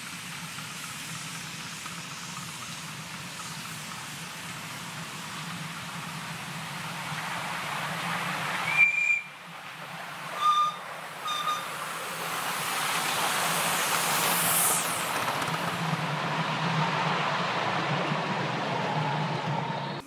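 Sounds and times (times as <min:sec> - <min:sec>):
miniature train running: 0:00.0 - 0:20.0
steam hissing: 0:00.0 - 0:20.0
steam whistle: 0:08.6 - 0:09.4, 0:10.4 - 0:11.8
high squeal: 0:10.4 - 0:11.9.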